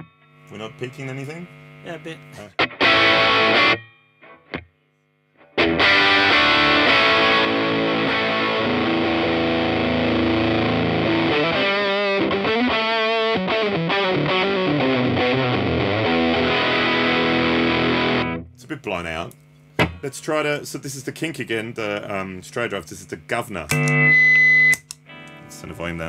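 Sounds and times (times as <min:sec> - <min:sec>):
distorted electric guitar: 0:00.0 - 0:18.5, 0:23.7 - 0:24.3, 0:25.0 - 0:26.0.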